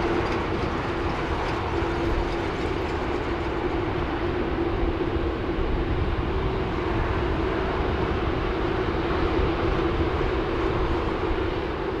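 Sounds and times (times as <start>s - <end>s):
jet engines roaring at take-off: 0.0s - 12.0s.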